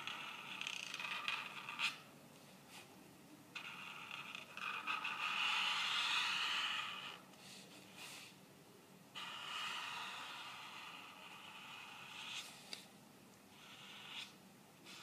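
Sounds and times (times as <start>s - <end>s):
pen nib scratching paper: 3.6s - 7.2s, 9.2s - 12.8s, 13.5s - 15.0s.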